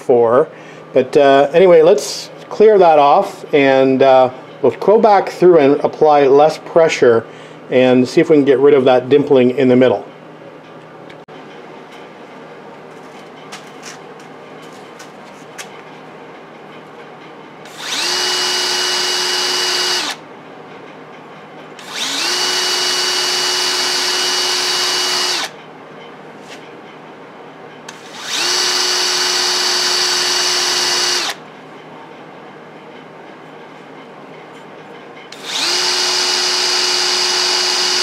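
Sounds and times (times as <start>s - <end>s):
electric drill whining: 17.7s - 20.2s, 21.8s - 25.6s, 27.9s - 31.4s, 35.3s - 38.0s.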